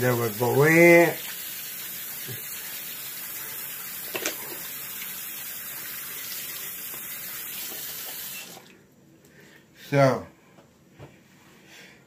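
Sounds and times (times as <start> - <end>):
tap running into sink: 4.0 - 4.7.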